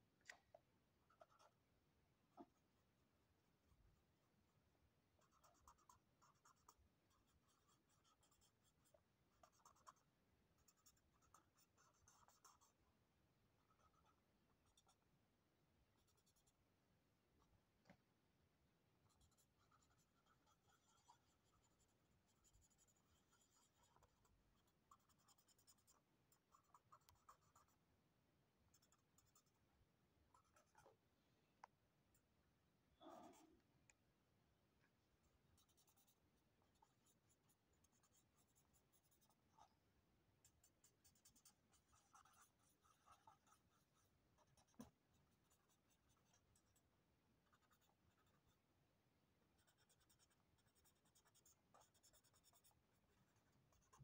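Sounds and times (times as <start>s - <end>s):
marker drawing on paper: 5.2s - 10.0s, 10.6s - 12.8s, 19.1s - 27.8s, 35.6s - 36.2s, 36.8s - 39.6s, 40.4s - 46.8s, 47.4s - 48.6s, 49.6s - 54.0s.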